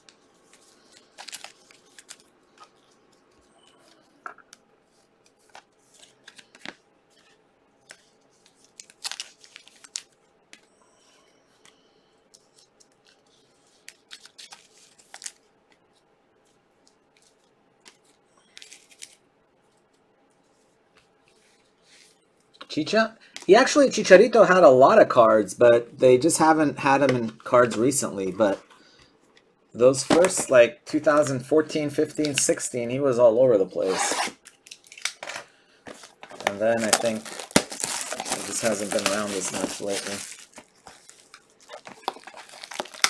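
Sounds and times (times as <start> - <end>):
foil wrappers ripping and crinkling: 0.8 - 2.3, 8.6 - 10.2, 35.9 - 43.0.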